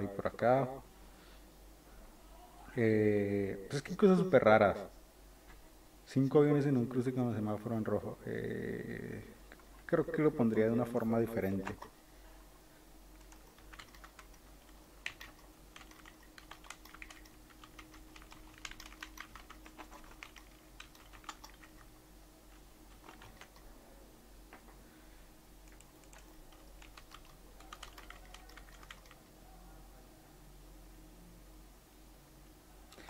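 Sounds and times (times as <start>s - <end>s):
low steady hum: 0.0s - 33.0s
keyboard typing: 11.5s - 12.0s, 13.2s - 21.9s, 22.5s - 23.7s, 25.6s - 29.2s.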